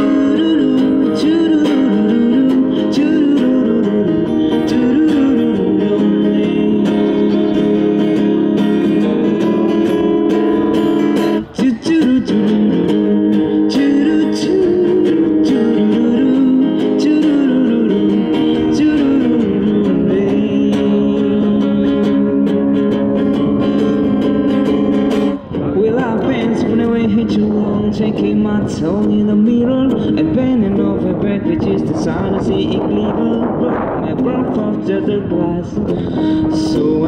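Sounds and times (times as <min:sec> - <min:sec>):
person singing wordless melody: 0:00.0 - 0:08.6, 0:11.2 - 0:22.4, 0:25.4 - 0:37.0
acoustic guitar strumming: 0:00.0 - 0:37.0.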